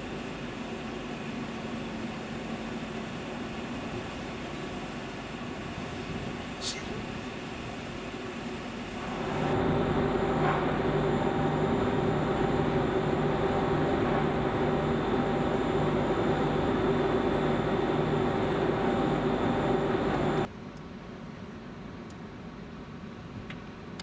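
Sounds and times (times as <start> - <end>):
ferry machinery hum: 0.0 - 20.5.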